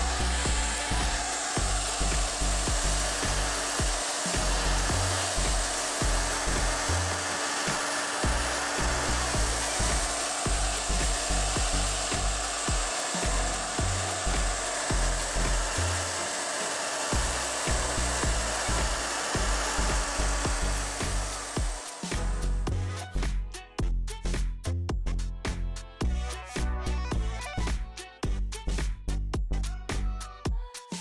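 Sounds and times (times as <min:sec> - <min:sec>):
background music with bass line: 0:00.0 - 0:16.4, 0:17.1 - 0:31.0
hot air gun blowing: 0:00.0 - 0:22.6.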